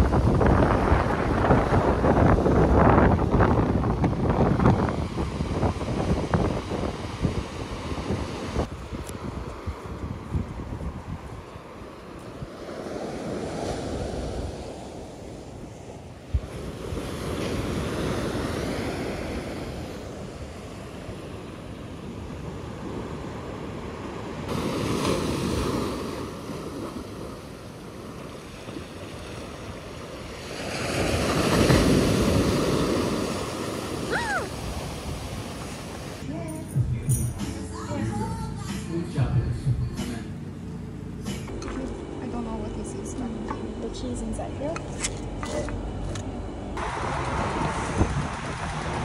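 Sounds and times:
wind on microphone: 0:00.0 - 0:36.2, 0:46.8 - 0:49.0
small waves breaking on sand: 0:00.0 - 0:36.3.

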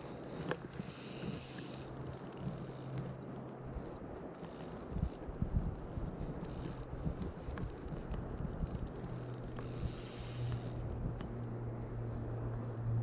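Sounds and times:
fabric rubbing on microphone: 0:03.9 - 0:10.8.

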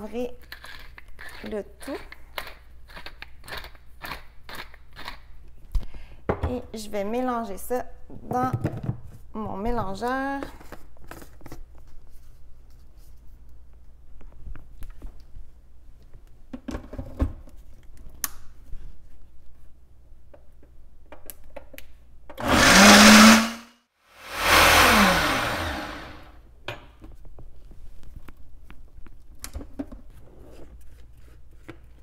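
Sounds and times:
blender motor running: 0:22.4 - 0:26.3.

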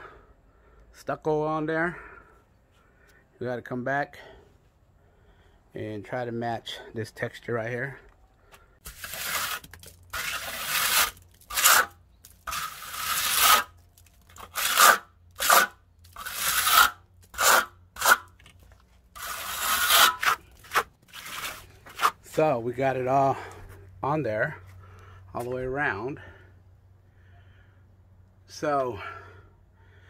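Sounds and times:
trowel scraping stucco on wall: 0:08.8 - 0:22.5.

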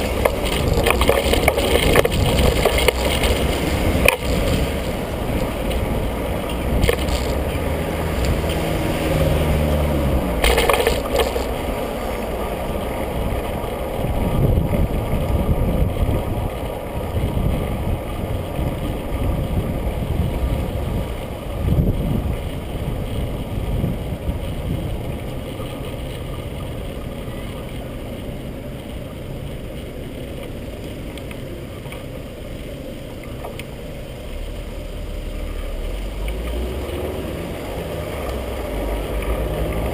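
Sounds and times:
wind buffeting microphone: 0:00.0 - 0:29.2
bicycle tyre road rumble: 0:00.0 - 0:39.9
car engines running: 0:00.0 - 0:39.9.

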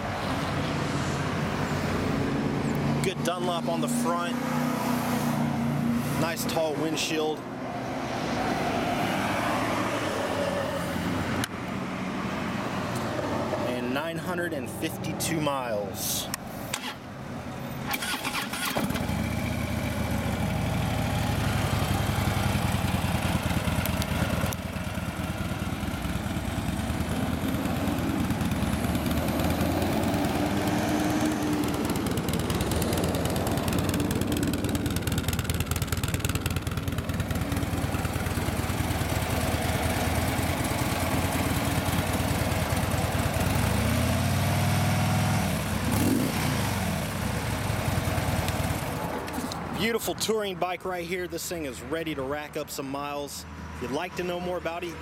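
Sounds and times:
motorcycle engine starting and idling: 0:16.7 - 0:17.1, 0:17.8 - 0:49.5.

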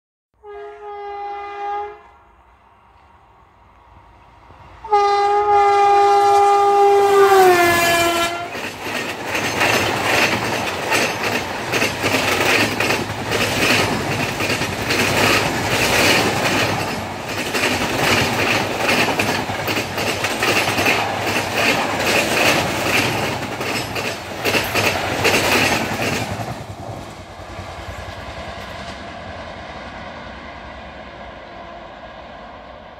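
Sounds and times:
train horn: 0:00.4 - 0:02.4, 0:04.8 - 0:08.6
train coaches rumbling past: 0:00.4 - 0:32.9
wheels clattering on rails: 0:07.8 - 0:27.4.

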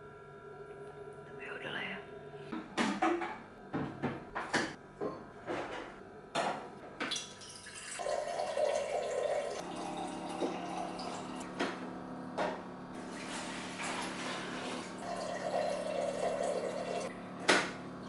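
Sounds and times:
water pouring into glass jug: 0:07.2 - 0:11.4, 0:13.0 - 0:17.1.

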